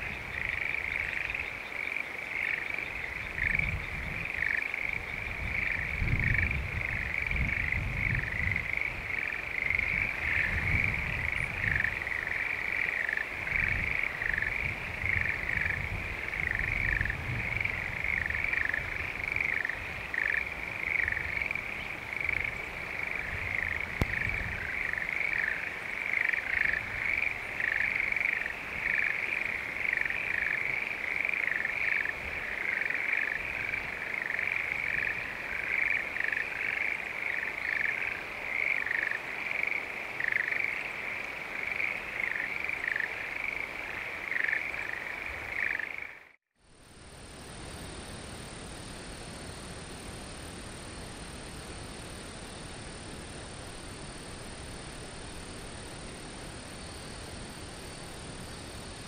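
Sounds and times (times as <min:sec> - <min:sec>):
frogs croaking: 0:00.0 - 0:46.4.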